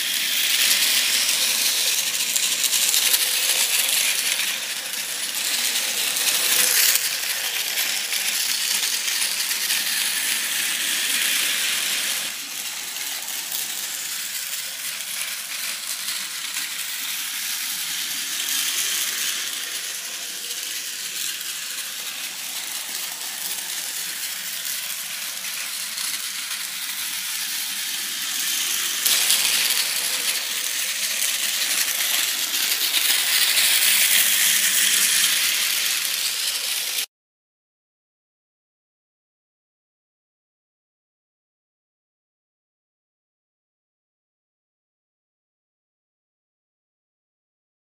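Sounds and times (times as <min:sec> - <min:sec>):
toy train whirring and rattling: 0:00.0 - 0:37.1.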